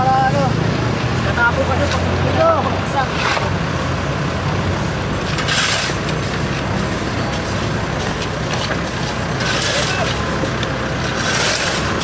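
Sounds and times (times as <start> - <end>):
diesel engine idling: 0.0 - 12.0
shovel scraping rubble: 5.2 - 7.4, 8.5 - 12.0.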